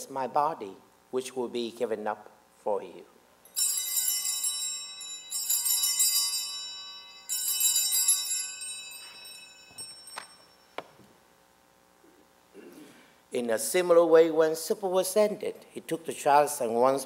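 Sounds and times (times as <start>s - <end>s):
altar bells jingling: 3.4s - 11.0s.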